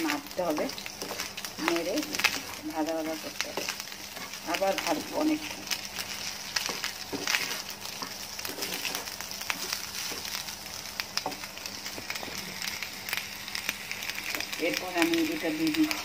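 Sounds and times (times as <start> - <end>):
rice sizzling in a frying pan: 0.0 - 16.0
wooden spatula scraping a pan: 0.1 - 10.4.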